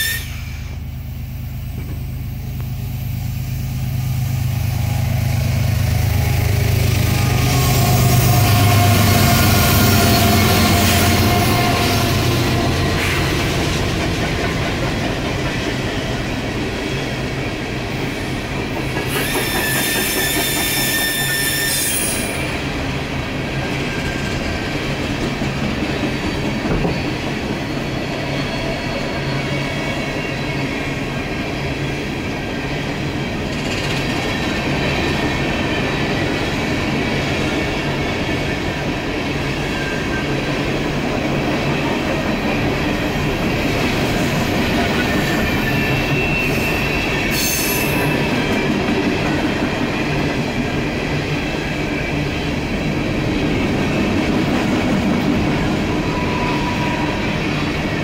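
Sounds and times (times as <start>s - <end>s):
high-pitched wheel squeal: 0.0s - 0.7s, 6.0s - 13.1s, 19.1s - 22.5s, 45.1s - 48.4s, 56.0s - 57.4s
diesel locomotives droning: 0.0s - 58.0s
freight cars rolling on rails: 1.6s - 58.0s.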